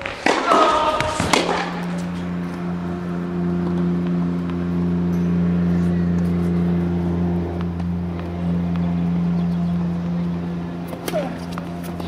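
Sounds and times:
tennis ball bouncing on hard court: 0.0s - 2.2s
engine running steadily: 0.2s - 12.0s.

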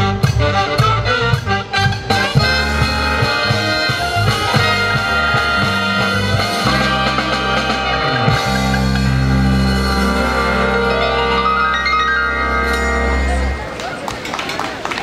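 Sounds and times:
big band playing: 0.0s - 15.0s
drum strokes: 0.2s - 10.9s.

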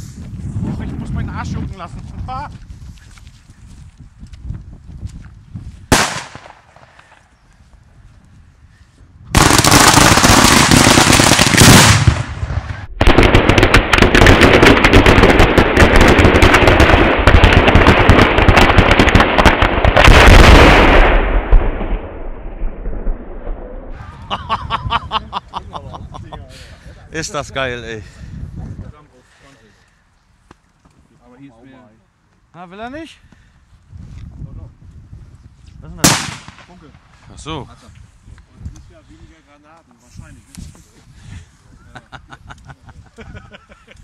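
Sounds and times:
firecrackers crackling: 5.9s - 7.2s, 9.3s - 22.3s, 36.0s - 37.3s.

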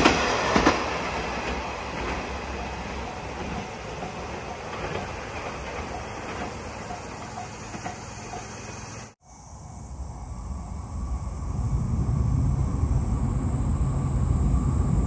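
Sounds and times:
train wheels clacking on rails: 0.0s - 9.2s
outdoor hush: 0.0s - 14.1s
level-crossing bell dinging: 2.4s - 8.9s.

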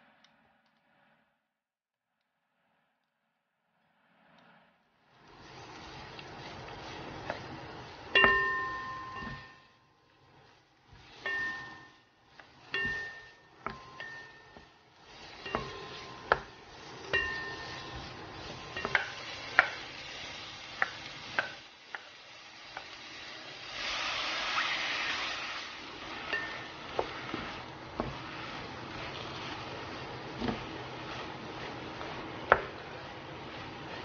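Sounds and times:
squid sizzling in hot oil: 5.2s - 34.0s
wooden spatula stirring vegetables: 5.2s - 34.0s
spatula clacking against pan: 8.2s - 9.7s, 11.0s - 20.1s, 20.7s - 23.0s, 26.1s - 34.0s.

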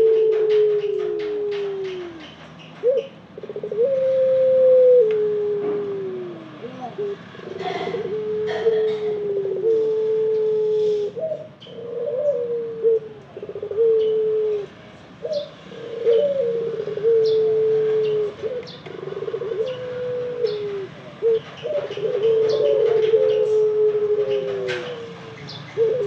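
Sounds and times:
dove cooing: 0.0s - 26.0s.

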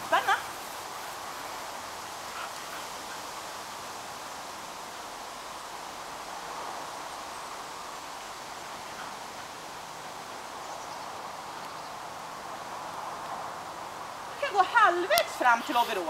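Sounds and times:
rustling outdoor hiss: 0.0s - 16.0s.

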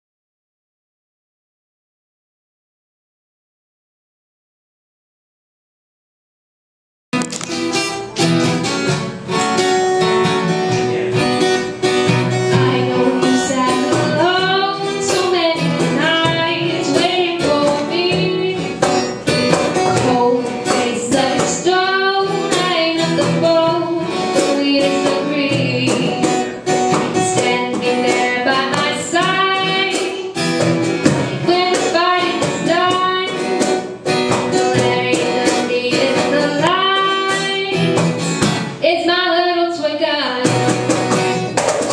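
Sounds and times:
strummed acoustic guitar: 7.2s - 39.1s, 39.8s - 41.9s
woman singing into microphone: 12.3s - 30.5s, 31.1s - 33.8s, 34.5s - 38.1s, 38.8s - 40.6s.

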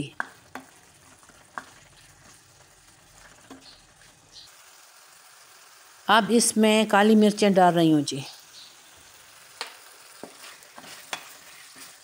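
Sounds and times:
faint sizzle in a pan: 0.0s - 12.0s
wooden spatula scraping a pan: 10.2s - 12.0s.

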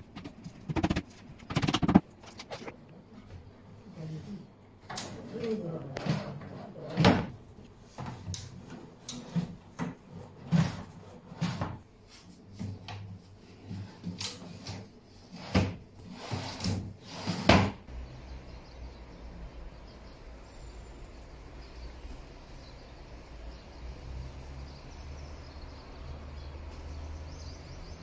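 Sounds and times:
drawers sliding on metal runners: 14.3s - 17.8s.

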